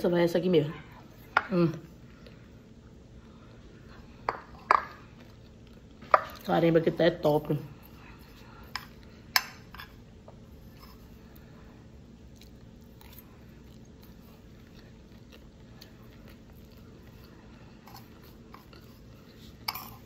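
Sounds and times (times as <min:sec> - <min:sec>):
chewing food: 0:03.2 - 0:06.5, 0:07.7 - 0:20.0.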